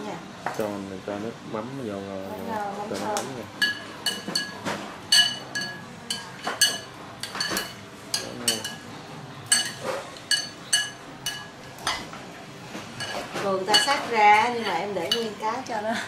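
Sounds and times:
utensils clinking against ceramic bowl: 0:03.6 - 0:12.2, 0:13.0 - 0:15.4.

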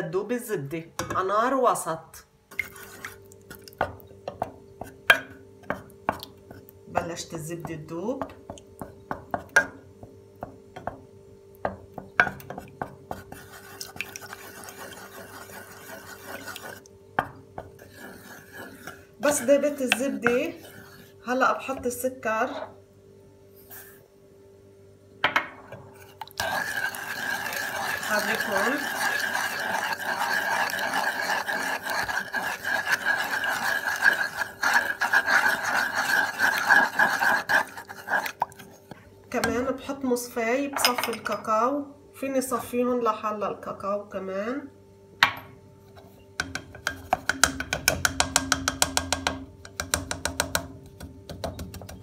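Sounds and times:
steady hum: 0:00.0 - 0:47.4
wooden spoon scraping pan: 0:02.5 - 0:03.2, 0:12.2 - 0:16.9, 0:17.6 - 0:22.2, 0:25.7 - 0:39.7
wooden spoon knocking on pan: 0:03.8 - 0:06.2, 0:06.9 - 0:13.2, 0:17.2 - 0:17.8, 0:25.2 - 0:25.6, 0:46.4 - 0:52.0.

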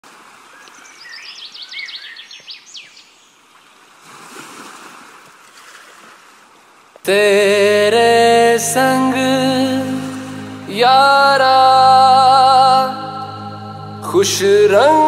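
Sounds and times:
wave washing in: 0:07.3 - 0:15.0
high chirps: 0:08.0 - 0:15.0.

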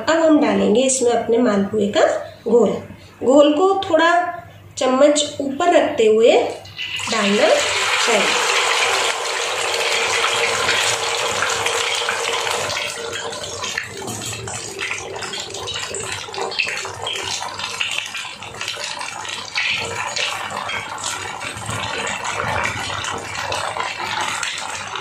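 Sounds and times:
batter frying sizzling: 0:06.6 - 0:25.0
crackling and popping: 0:10.2 - 0:25.0.

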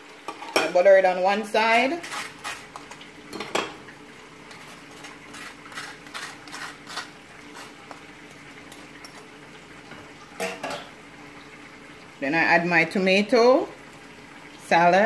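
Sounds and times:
knife scraping bun: 0:02.0 - 0:03.0, 0:04.5 - 0:08.0
utensils clattering: 0:10.4 - 0:10.9.

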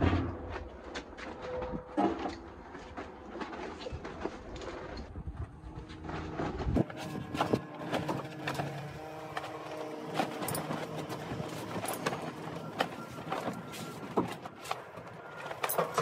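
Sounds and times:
foil rustling: 0:02.6 - 0:16.0
metal clicks and clanks: 0:06.8 - 0:16.0.

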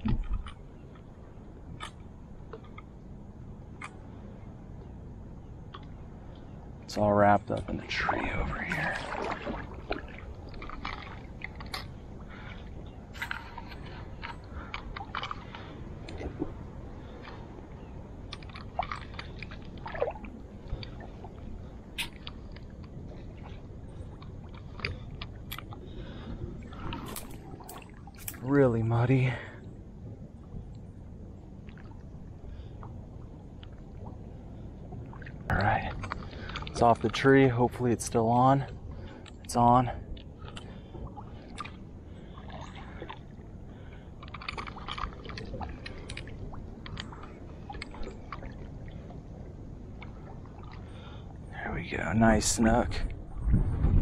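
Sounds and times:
steady low rumble: 0:00.0 - 0:54.0
water sloshing around kayak: 0:05.5 - 0:54.0
fishing line handling clicks and rustles: 0:10.0 - 0:16.3, 0:24.1 - 0:25.8, 0:26.6 - 0:28.9, 0:35.6 - 0:40.8, 0:43.9 - 0:48.6.

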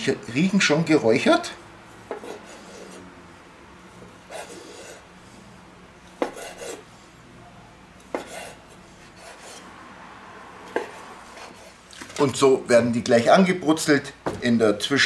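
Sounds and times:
knife slicing on wooden board: 0:06.2 - 0:06.8, 0:08.1 - 0:09.6.

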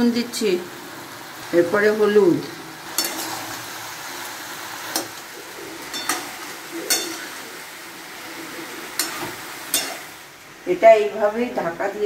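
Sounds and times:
vegetables sizzling in a pan: 0:00.0 - 0:12.0
spatula clinking on metal pan: 0:05.9 - 0:07.3, 0:09.0 - 0:10.1.

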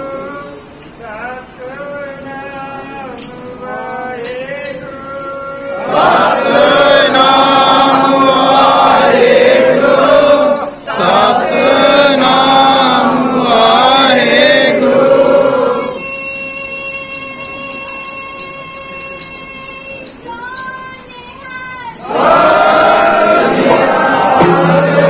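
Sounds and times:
men chanting in unison: 0:02.2 - 0:15.9, 0:22.0 - 0:25.0.

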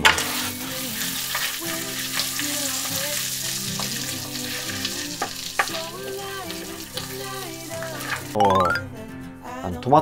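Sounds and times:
butter sizzling in a pan: 0:00.0 - 0:08.4
utensil tapping on pan: 0:05.0 - 0:05.9.

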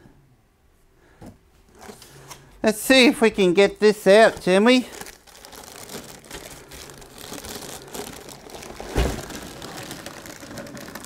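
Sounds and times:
plastic wrapping crinkling: 0:03.9 - 0:11.0
cardboard rustling: 0:04.0 - 0:11.0.

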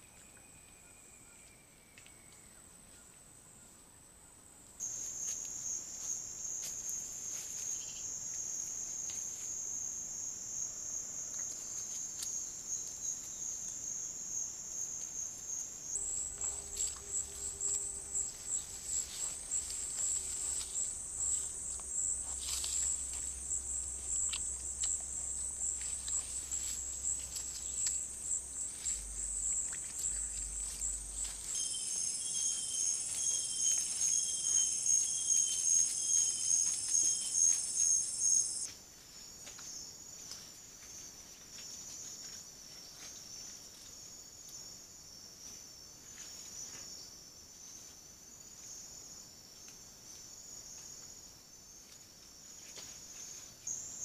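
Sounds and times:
night insects trilling: 0:04.8 - 0:38.7
faint low hum: 0:15.4 - 0:38.7
faint rustles and ticks: 0:16.0 - 0:31.6.

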